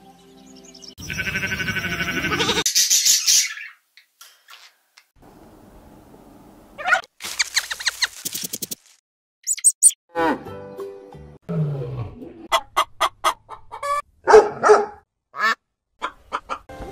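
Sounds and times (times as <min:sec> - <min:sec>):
hen clucking: 0:01.0 - 0:02.7, 0:12.5 - 0:14.0, 0:15.4 - 0:16.7
animal calls: 0:01.0 - 0:03.8, 0:06.8 - 0:08.1
hen squawk: 0:01.0 - 0:03.8, 0:06.8 - 0:08.2.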